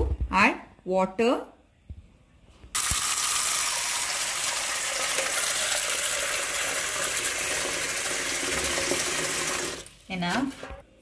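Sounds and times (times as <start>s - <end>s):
tap water pouring into metal pot: 2.8s - 9.9s.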